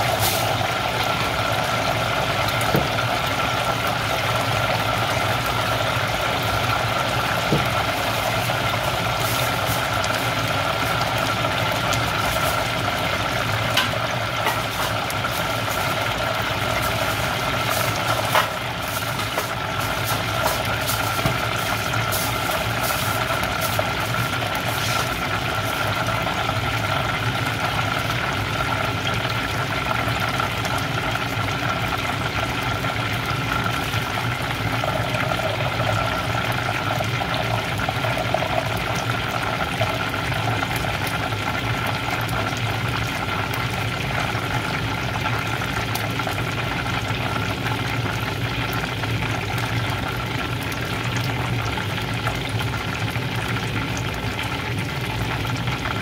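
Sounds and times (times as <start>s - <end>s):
chicken sizzling in hot oil: 0.0s - 56.0s.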